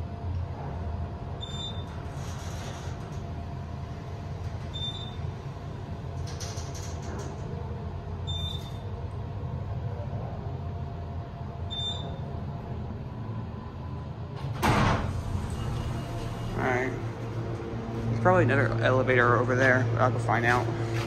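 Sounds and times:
elevator rumble: 0.0 - 21.0
short high elevator beeps: 1.4 - 2.0, 4.7 - 5.2, 8.3 - 8.8, 11.7 - 12.2, 15.4 - 16.6.

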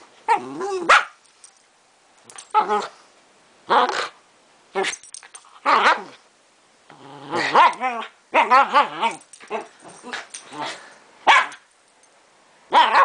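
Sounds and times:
small dog play-growling: 0.3 - 0.9, 6.9 - 10.9
small dog barking: 0.3 - 1.2, 11.2 - 11.6, 12.7 - 13.0.

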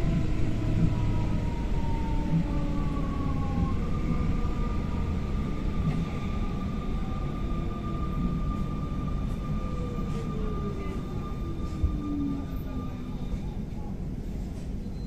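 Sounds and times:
train wheel and track rumble: 0.0 - 15.0.

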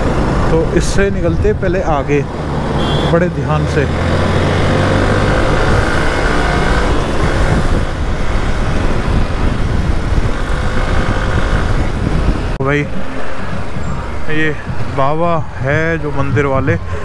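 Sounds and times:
heavy wind rumble on microphone: 0.0 - 2.7, 4.0 - 17.0
motorcycle engine accelerating: 2.2 - 14.9.

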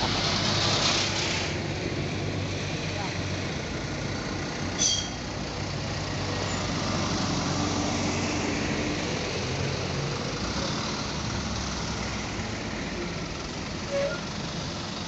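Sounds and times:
trucks and cars rolling past: 0.0 - 15.0
brief high squeak: 4.8 - 5.2.

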